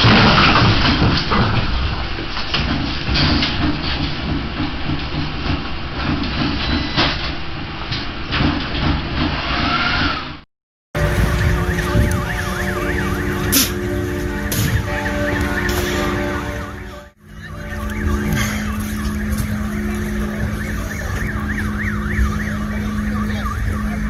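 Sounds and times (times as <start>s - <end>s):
room rumbling and rattling: 0.0s - 10.4s, 11.0s - 24.0s
siren wailing: 11.0s - 24.0s.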